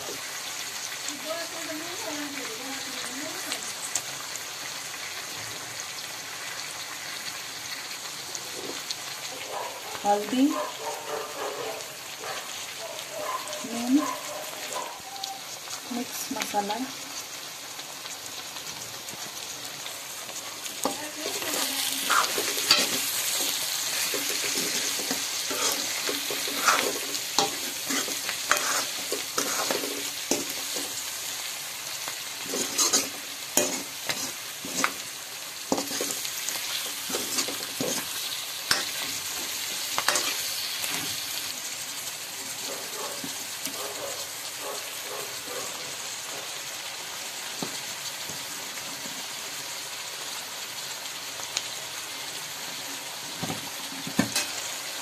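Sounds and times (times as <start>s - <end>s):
food sizzling in oil: 0.0s - 55.0s
metal spoon scraping wok: 20.6s - 31.1s, 32.4s - 41.4s.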